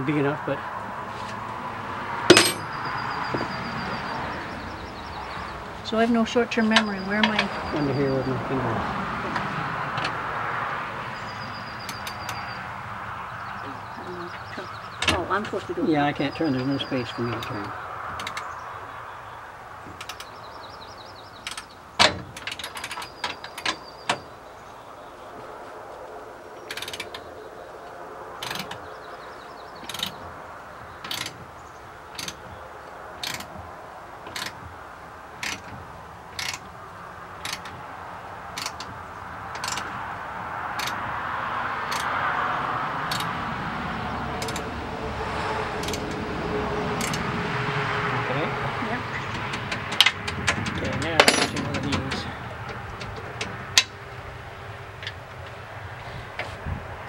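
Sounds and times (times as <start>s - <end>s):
metal clank: 2.3s - 2.8s, 49.2s - 54.0s
ratchet wrench clicking: 33.2s - 33.5s, 40.8s - 41.0s, 41.9s - 42.1s, 43.1s - 43.3s, 44.4s - 44.6s.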